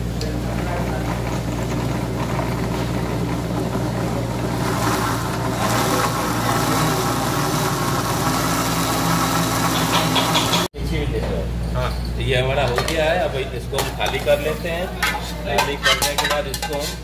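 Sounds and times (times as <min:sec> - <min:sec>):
mixer grinder motor whirring: 0:00.0 - 0:10.7.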